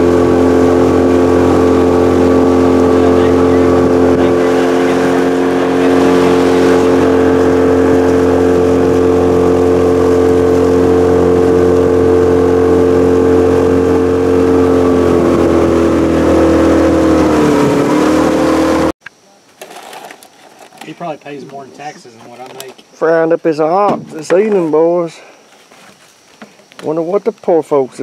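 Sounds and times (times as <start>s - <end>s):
outboard motor running: 0.0s - 19.0s.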